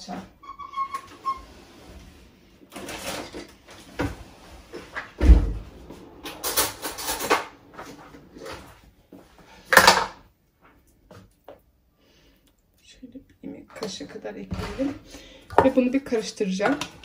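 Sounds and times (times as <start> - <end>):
loud thump: 5.2 - 7.9.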